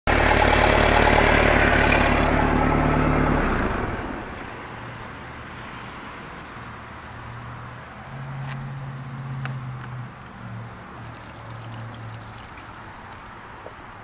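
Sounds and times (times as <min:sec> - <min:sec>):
boat engine running: 0:00.1 - 0:04.1.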